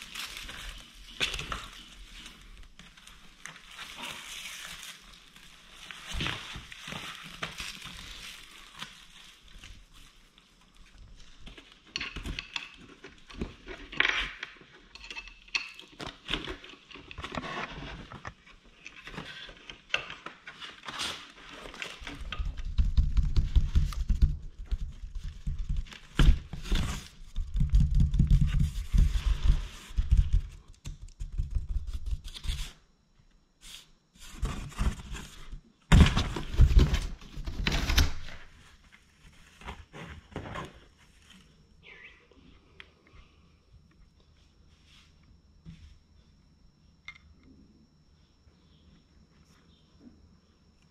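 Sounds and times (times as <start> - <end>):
cardboard and paper rustling: 0.0 - 14.8, 16.0 - 30.7, 34.2 - 41.6.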